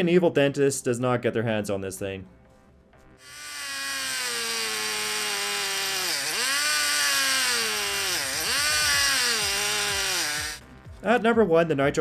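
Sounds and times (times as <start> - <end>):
cutoff wheel cutting wood: 3.2 - 10.6
small glow engine revving: 3.2 - 10.6.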